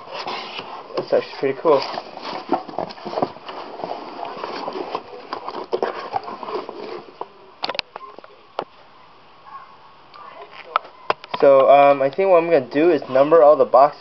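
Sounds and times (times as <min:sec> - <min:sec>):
cardboard flaps rustling: 0:00.0 - 0:07.4.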